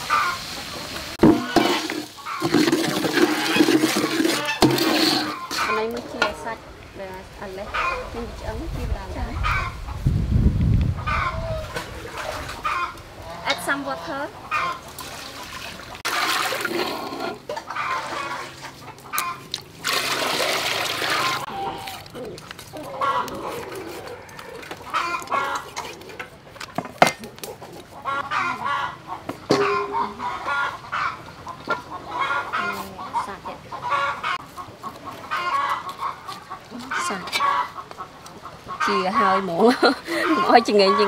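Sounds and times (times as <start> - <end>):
chickens clucking: 0.0 - 10.1, 11.0 - 16.1, 16.8 - 19.8, 21.0 - 41.0
water pouring into a pot: 15.0 - 17.3, 19.8 - 21.5.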